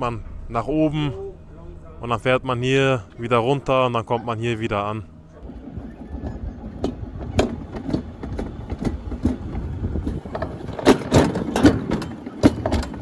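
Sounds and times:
sled rumbling on metal track: 5.2 - 13.0
sharp knocks and rattles: 5.4 - 13.0.

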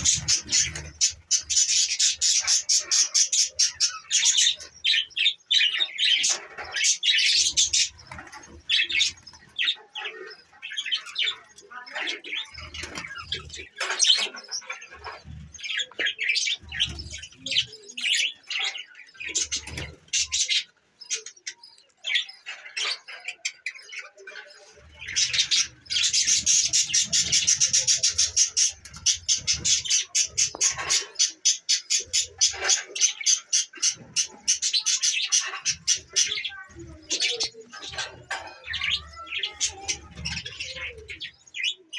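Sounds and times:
budgerigars chirping and chattering: 0.0 - 41.9.

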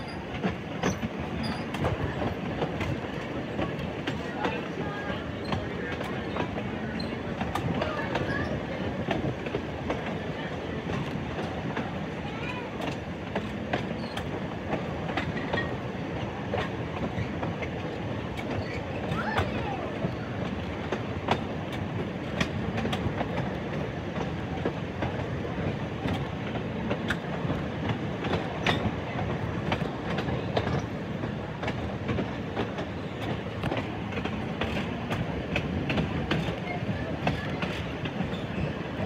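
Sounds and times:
streetcar wheels rumbling on rail: 0.0 - 39.0
wheels clicking over rail joints: 0.0 - 39.0.

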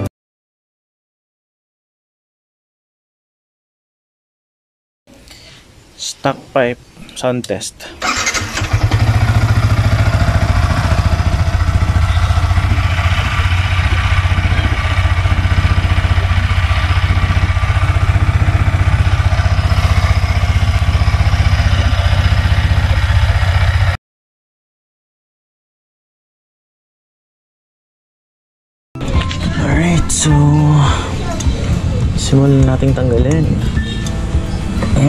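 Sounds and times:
motorcycle engine idling: 8.0 - 24.0.

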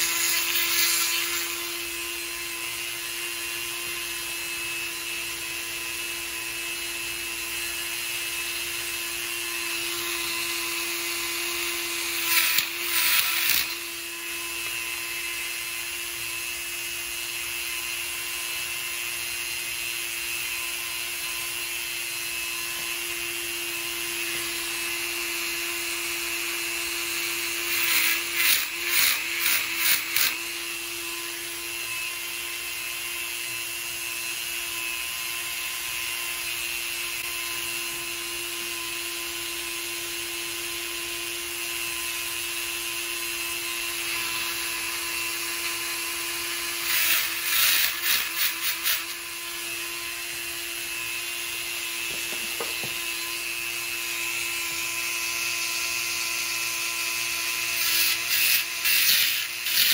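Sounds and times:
burr grinding steel: 0.0 - 2.3, 9.5 - 15.3, 27.2 - 31.4, 44.0 - 51.2, 57.7 - 59.9
rotary tool whining: 0.0 - 59.9.

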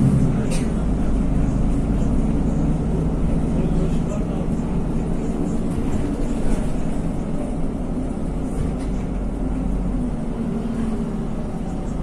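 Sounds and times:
bus engine drone: 0.0 - 12.0
road noise: 0.0 - 12.0.

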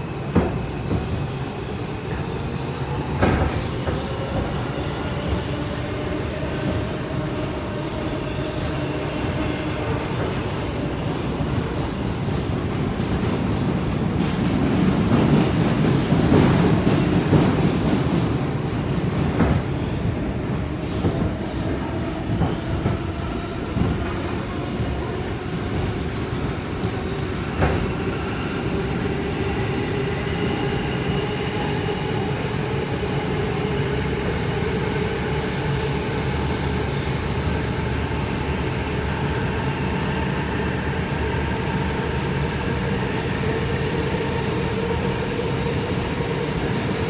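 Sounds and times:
subway wheels rumbling on rail: 0.0 - 47.0.

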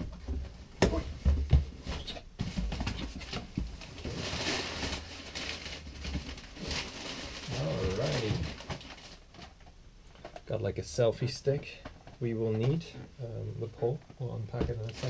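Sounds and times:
packing paper rustling: 1.8 - 9.6.

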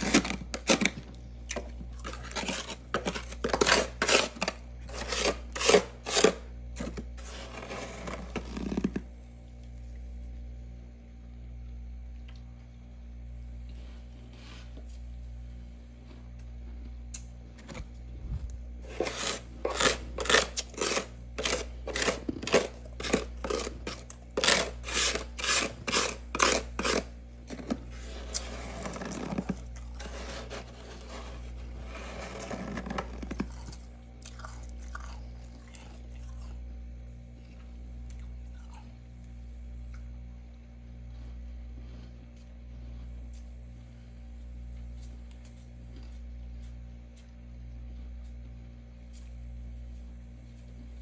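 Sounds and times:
crunching frost chewing: 0.0 - 9.0, 18.8 - 36.8
steady low hum: 0.0 - 51.0
scraping frost: 2.1 - 8.8, 18.8 - 33.8.

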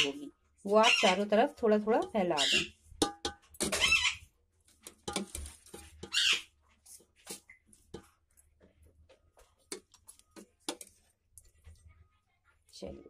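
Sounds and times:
metal ladle clinking on steel pots: 0.0 - 6.5, 7.3 - 8.6, 9.6 - 11.6.

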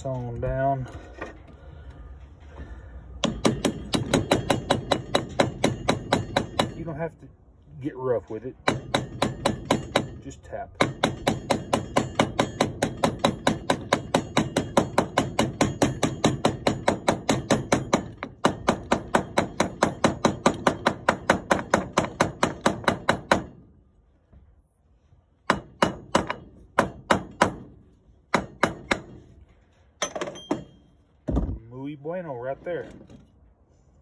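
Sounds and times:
hammer tapping metal: 3.2 - 6.9, 8.6 - 10.2.

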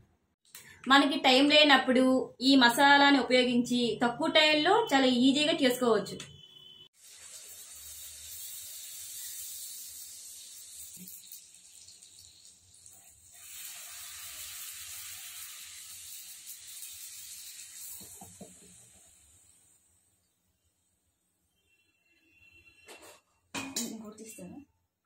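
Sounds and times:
hot oil sizzling: 6.9 - 20.9.

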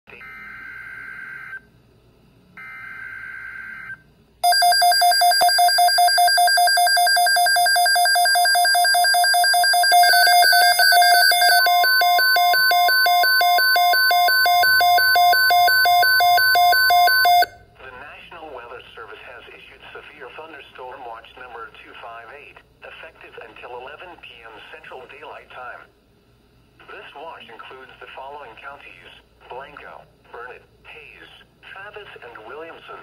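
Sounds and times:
rapid pulsing alarm beeps: 4.4 - 17.5.

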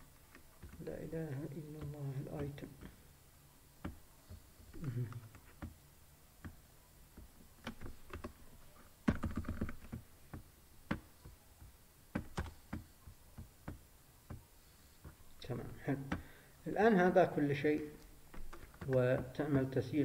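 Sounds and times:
computer keyboard typing: 9.1 - 10.0, 10.9 - 13.8.

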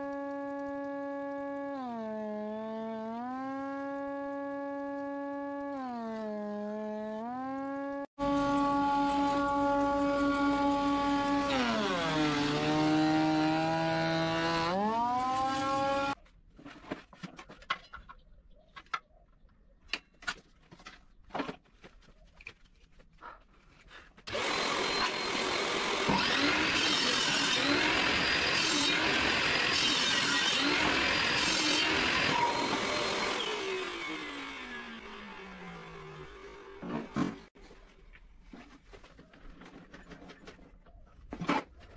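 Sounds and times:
power tool motor whining: 0.0 - 16.2, 24.3 - 37.4
table saw ripping wood: 0.1 - 17.1, 24.3 - 37.6.

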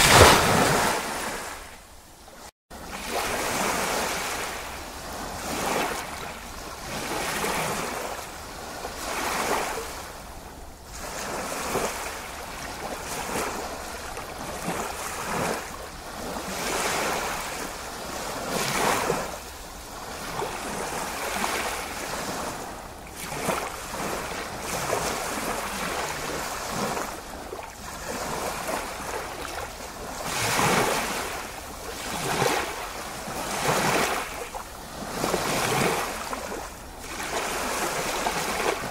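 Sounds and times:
ocean waves washing in and out: 0.0 - 38.9.

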